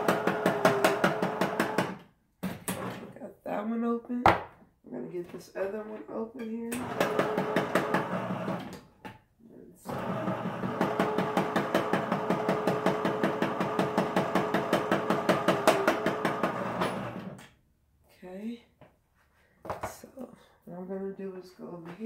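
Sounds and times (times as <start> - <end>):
electric can opener motor ticking: 9.9 - 17.4.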